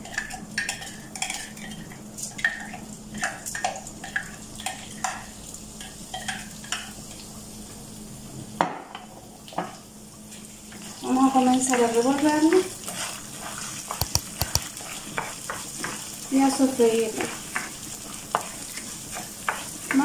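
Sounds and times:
rice sizzling in oil: 0.0s - 20.0s.

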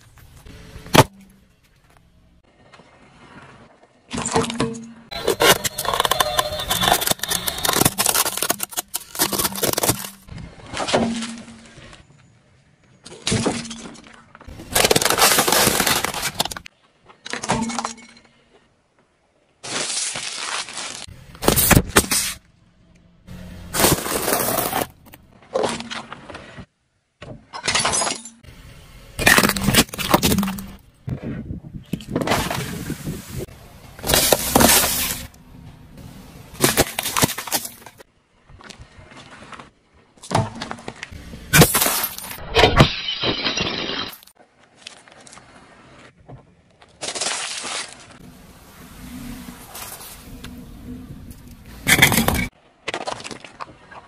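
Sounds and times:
plastic toy breaking: 5.1s - 10.3s, 13.2s - 16.7s, 29.2s - 30.8s, 36.6s - 38.0s, 41.5s - 44.4s
objects crushed under car tyre: 5.1s - 11.9s, 13.2s - 16.7s, 23.6s - 26.3s, 29.2s - 30.8s, 34.0s - 35.3s, 36.5s - 38.1s, 40.2s - 44.4s.

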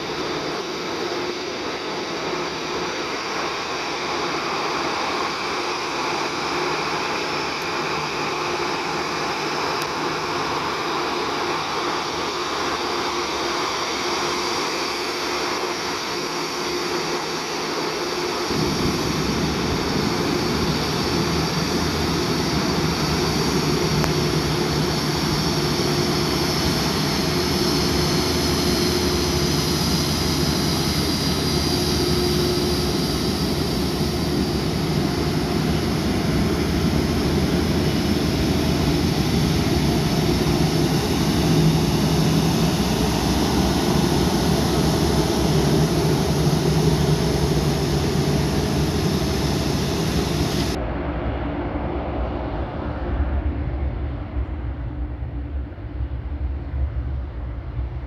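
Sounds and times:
jet engine roar with whine: 0.0s - 58.0s.

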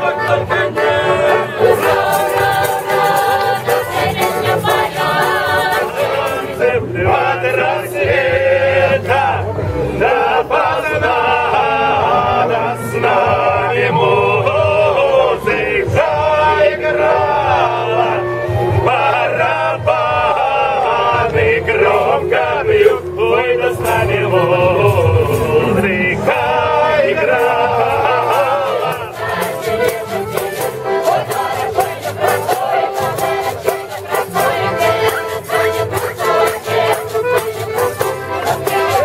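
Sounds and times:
button accordion: 0.0s - 39.0s
choir singing folk song: 0.0s - 39.0s
quick percussive beats: 0.1s - 8.3s, 23.8s - 39.0s.

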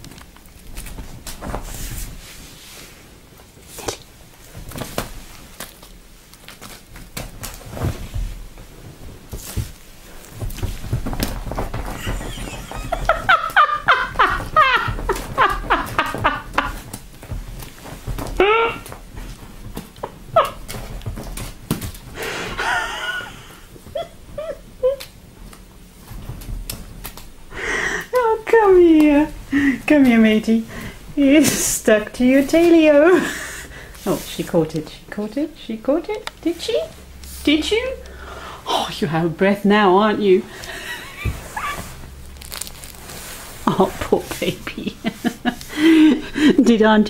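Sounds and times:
cat paws thumping on cushion: 0.7s - 3.0s, 3.6s - 22.2s, 25.2s - 27.5s, 41.1s - 45.7s.

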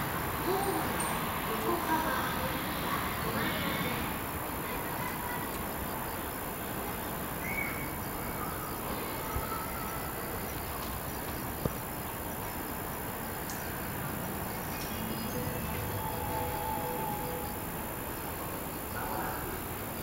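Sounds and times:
outdoor background noise: 0.0s - 20.0s
faint brief high tones: 14.6s - 18.6s.

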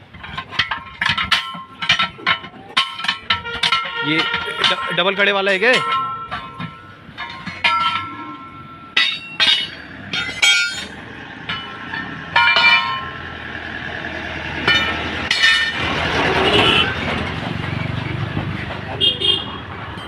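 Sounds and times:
metal clanks on wheel rim: 0.0s - 13.3s, 14.6s - 20.0s.

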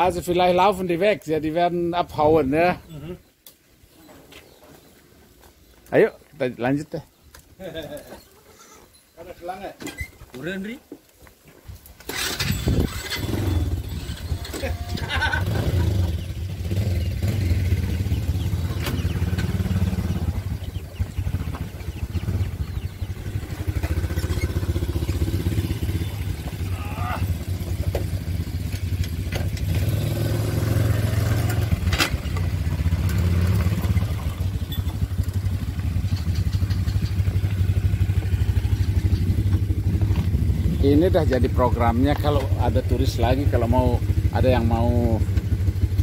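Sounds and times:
quad bike engines idling: 12.1s - 46.0s.

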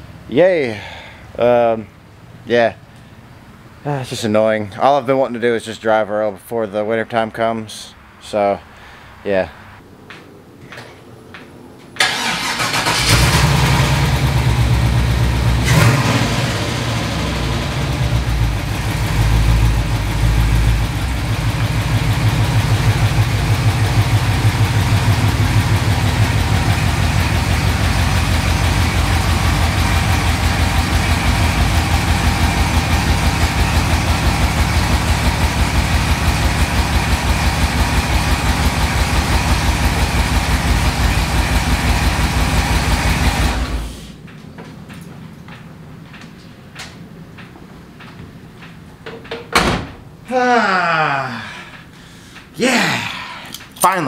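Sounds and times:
truck engine running: 12.0s - 49.0s.

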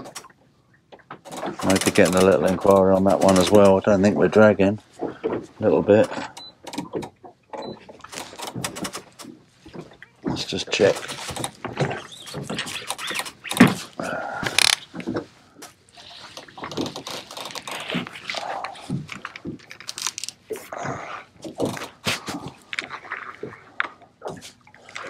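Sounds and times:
fishing reel winding: 14.6s - 14.8s.

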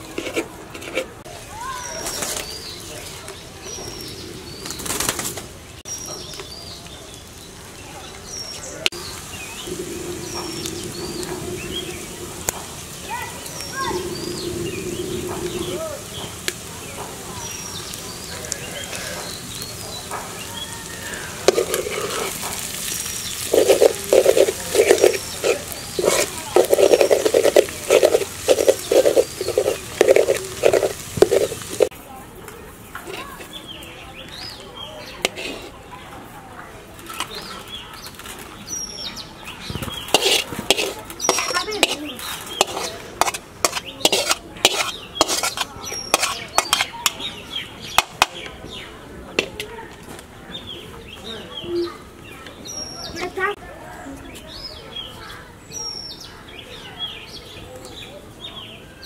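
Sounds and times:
metal spatula scraping pan: 0.0s - 1.2s, 21.1s - 31.9s, 35.2s - 35.8s, 40.1s - 47.3s
egg sizzling in oil: 8.9s - 32.0s, 40.0s - 47.2s
rushing noise bursts: 9.0s - 17.4s, 21.0s - 31.9s.

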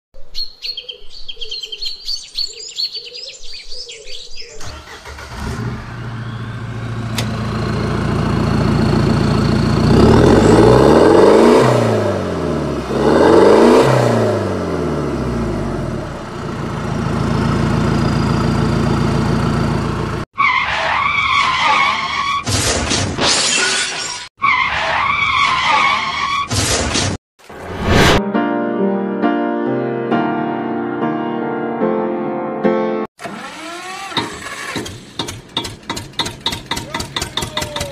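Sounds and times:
bird chirping: 0.2s - 4.7s
car engine revving: 4.8s - 20.2s.

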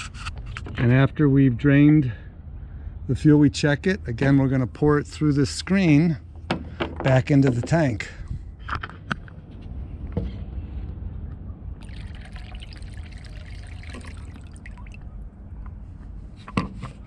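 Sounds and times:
low steady rumble: 0.8s - 17.0s
liquid trickling into tank: 11.8s - 15.2s.

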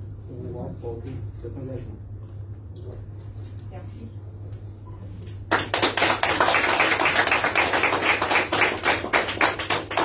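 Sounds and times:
audience applauding: 5.5s - 10.0s.

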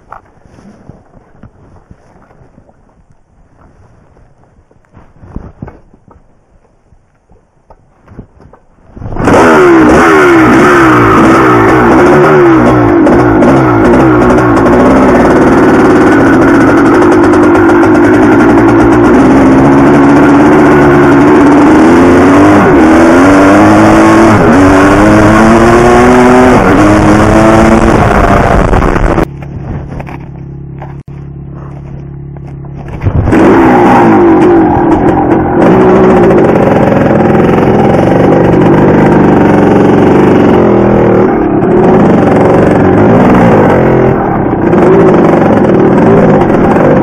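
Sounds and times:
dirt bike engine revving: 8.9s - 47.0s
quiet low engine note: 28.6s - 33.4s.

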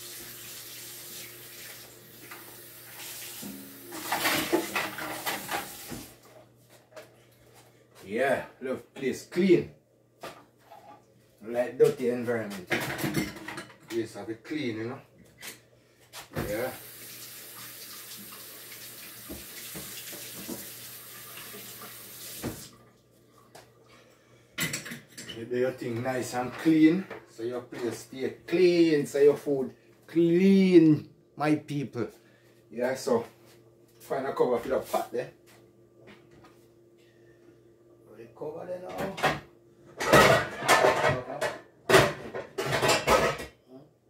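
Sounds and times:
dishes clattering in sink: 3.4s - 6.2s, 12.5s - 14.0s, 19.3s - 20.8s, 24.6s - 25.4s, 38.9s - 43.6s
tap running into metal sink: 19.2s - 20.8s.

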